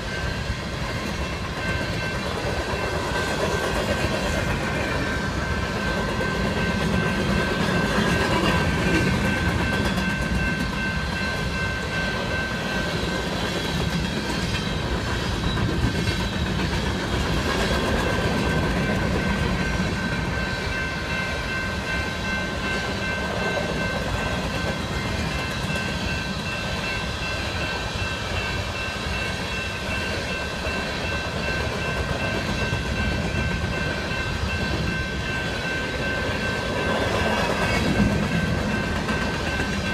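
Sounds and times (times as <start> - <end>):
train wheels rumbling on rails: 0.0 - 39.9
high ringing tone: 4.8 - 13.3.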